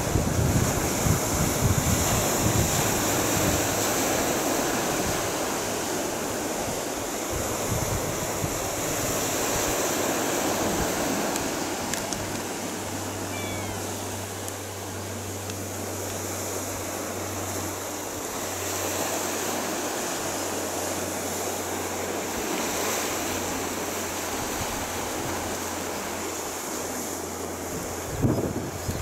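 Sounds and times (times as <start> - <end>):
wind buffeting microphone: 0.0 - 16.4, 27.5 - 29.0
sea surf washing on concrete: 0.0 - 29.0.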